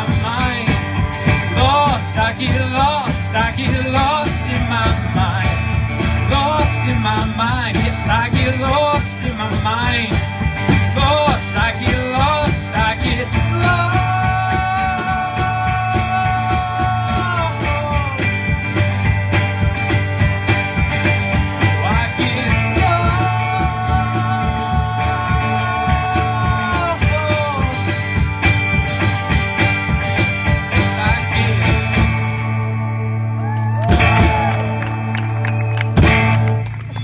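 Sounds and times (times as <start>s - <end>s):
live rock band playing: 0.0s - 37.0s.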